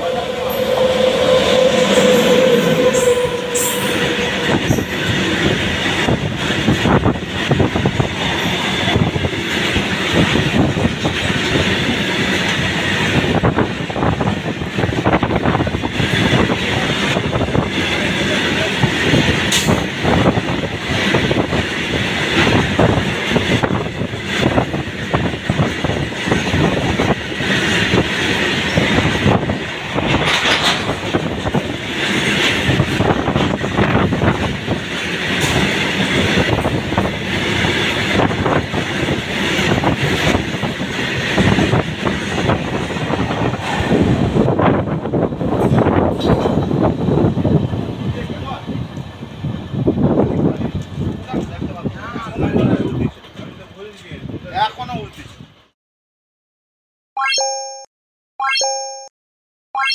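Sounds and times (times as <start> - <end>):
freight wagons rumbling: 0.0 - 55.5
wheels clacking over rail joints: 21.7 - 44.0.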